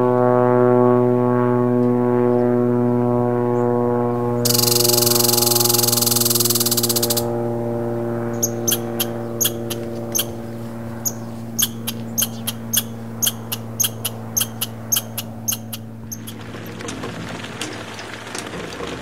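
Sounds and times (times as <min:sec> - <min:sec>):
low steady hum: 0:00.0 - 0:19.0
squirrel making sharp clicks: 0:04.5 - 0:07.3, 0:08.4 - 0:10.4, 0:11.0 - 0:16.4.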